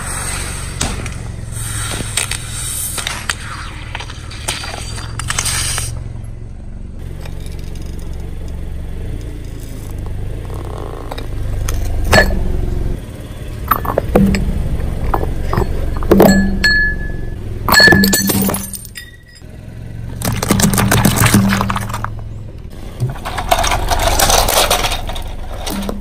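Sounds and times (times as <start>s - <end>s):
car tyre rolling low rumble: 0.0s - 26.0s
plastic toys cracking and snapping: 20.2s - 22.1s, 23.1s - 25.9s.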